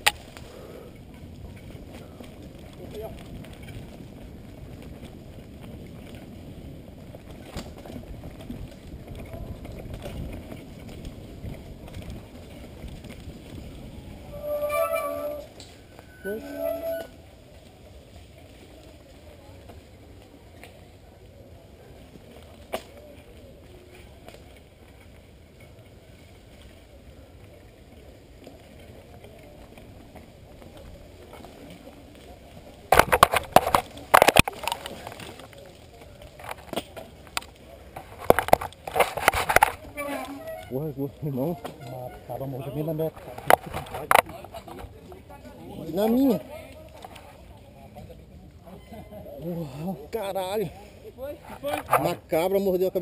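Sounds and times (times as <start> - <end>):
mountain bike rattling on dirt trail: 0.0 - 53.0
wind rush on microphone: 0.2 - 14.8.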